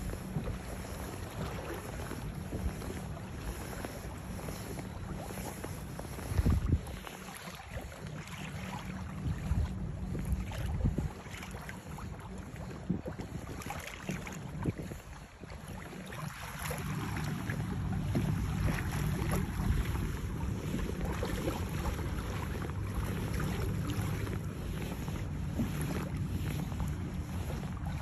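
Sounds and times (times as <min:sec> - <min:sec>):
small waves splashing on plastic hull: 0:00.0 - 0:28.0
wind buffeting microphone: 0:00.0 - 0:28.0.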